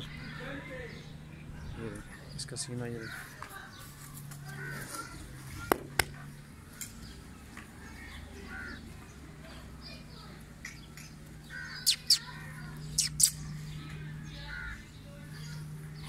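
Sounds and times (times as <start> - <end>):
faint distant voices: 0.0 - 16.0
bird calls: 10.6 - 16.0.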